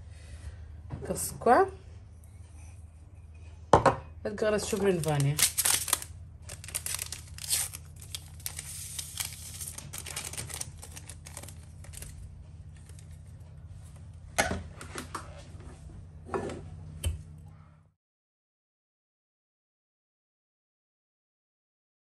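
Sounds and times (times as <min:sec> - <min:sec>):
low steady hum: 0:00.0 - 0:17.9
paper packet crinkling: 0:04.6 - 0:13.3.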